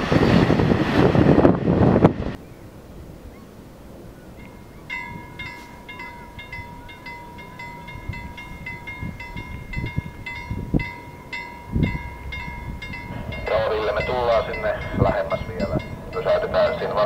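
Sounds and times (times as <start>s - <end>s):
wind rumble on microphone: 0.0s - 17.0s
level-crossing warning bell: 4.4s - 17.0s.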